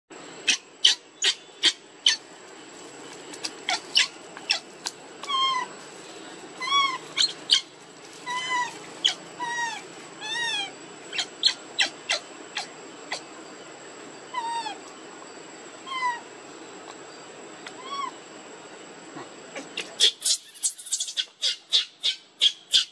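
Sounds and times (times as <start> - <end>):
baby monkey squeaking and whimpering: 0.5 - 2.2, 3.7 - 5.7, 6.6 - 12.7, 15.9 - 16.2, 17.7 - 18.2, 19.8 - 22.9.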